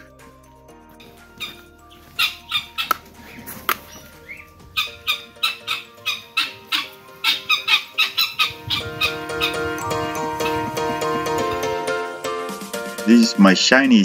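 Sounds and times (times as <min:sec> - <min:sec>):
background music: 0:00.0 - 0:14.0
guineafowl squawking: 0:01.0 - 0:11.9.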